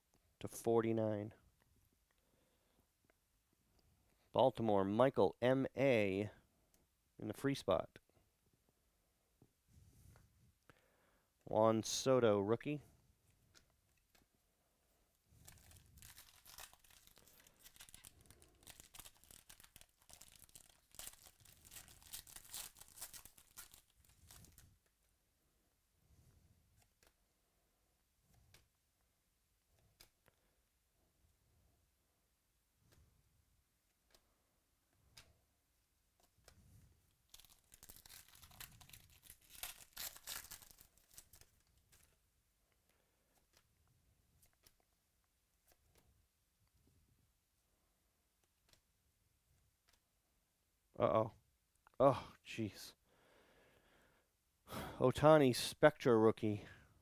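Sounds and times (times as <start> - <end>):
foil wrapper crinkling and tearing: 15.4 - 24.6, 37.3 - 42.1.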